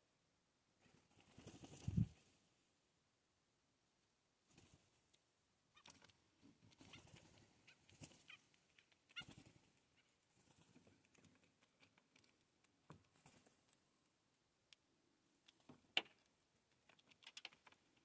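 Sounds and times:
bird wing flaps: 0:00.9 - 0:02.3, 0:04.5 - 0:04.9, 0:06.7 - 0:08.4
soft bird calls: 0:05.7 - 0:12.0.

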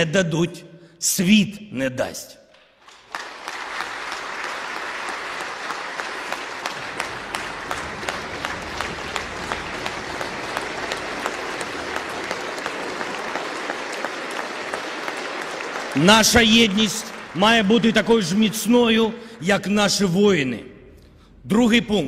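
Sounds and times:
crowd applauding: 0:02.7 - 0:19.2.

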